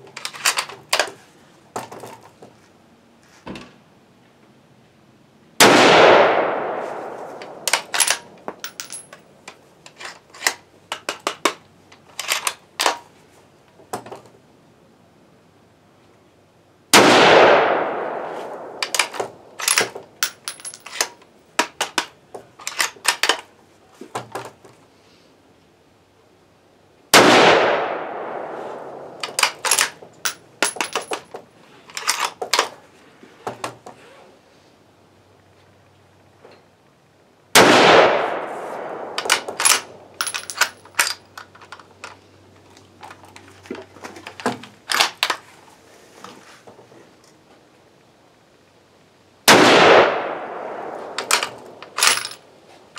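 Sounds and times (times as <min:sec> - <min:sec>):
gunshot echo: 0:05.6 - 0:07.6, 0:17.0 - 0:18.8, 0:27.2 - 0:29.2, 0:37.6 - 0:39.5, 0:49.5 - 0:51.7
rifle bolt clicking: 0:18.8 - 0:22.1.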